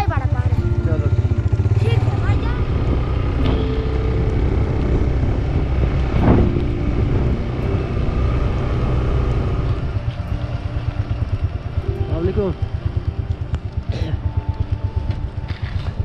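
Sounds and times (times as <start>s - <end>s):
motorcycle engine running: 0.0s - 16.0s
wind on microphone: 0.6s - 10.0s.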